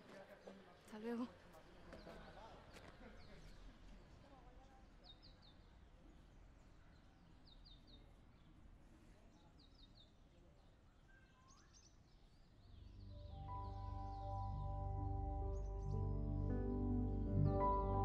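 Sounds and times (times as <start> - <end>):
soft sustained music: 12.7 - 18.0.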